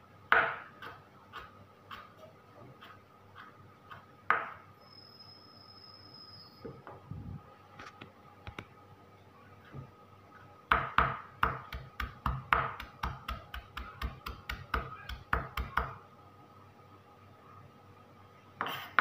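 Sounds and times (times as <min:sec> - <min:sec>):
knife chopping on wooden board: 0:10.7 - 0:16.0.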